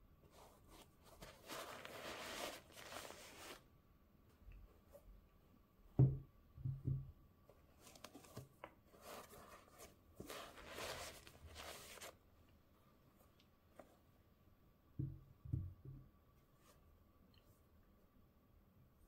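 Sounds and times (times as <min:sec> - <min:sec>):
paper packaging rustling: 0:00.4 - 0:03.6, 0:07.8 - 0:12.2.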